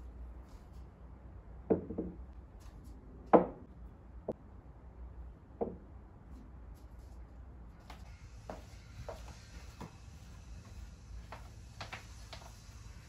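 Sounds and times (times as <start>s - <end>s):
ceramic vases set on wooden table: 1.6s - 2.3s.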